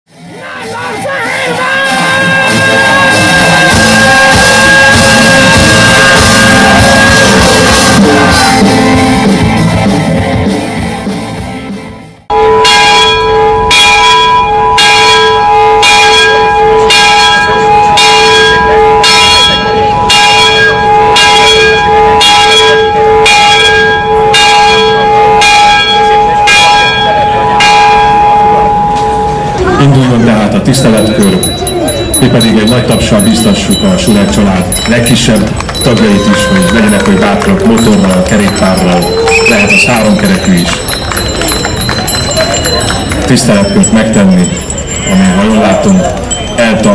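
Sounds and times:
music: 0:00.1 - 0:45.7
large bell tolling: 0:01.6 - 0:09.2, 0:12.3 - 0:46.9.

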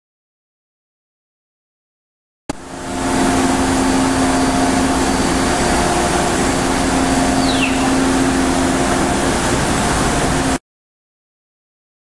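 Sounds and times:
loud rushing noise: 0:02.5 - 0:10.6
router spindle hum: 0:02.5 - 0:10.6
falling whistle: 0:07.3 - 0:08.0.

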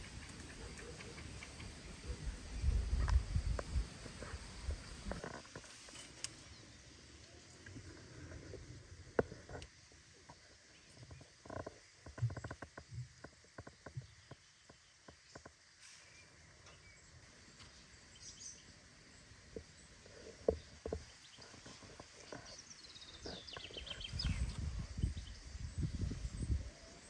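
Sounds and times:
low wind rumble: 0:01.7 - 0:05.4, 0:23.0 - 0:27.0
small clicks and rustles: 0:05.0 - 0:06.5.

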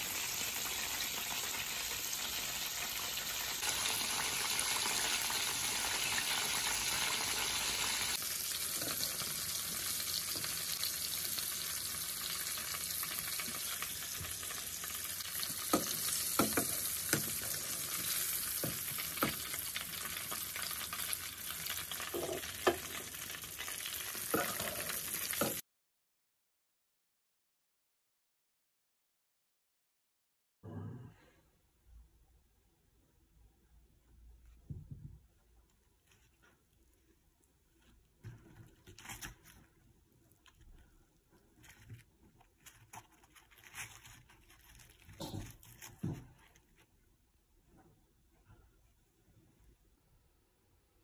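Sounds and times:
chicken sizzling in hot oil: 0:00.0 - 0:25.6.

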